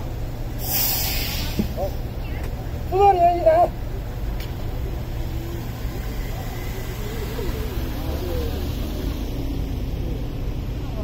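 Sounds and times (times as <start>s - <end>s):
car driving slowly past: 3.6s - 11.0s
faint voices: 4.6s - 11.0s.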